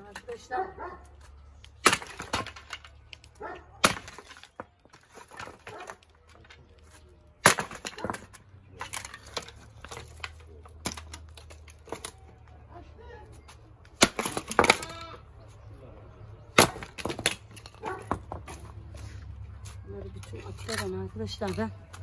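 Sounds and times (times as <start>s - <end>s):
wooden slats clattering: 1.8s - 12.3s, 13.9s - 15.1s, 16.5s - 18.8s.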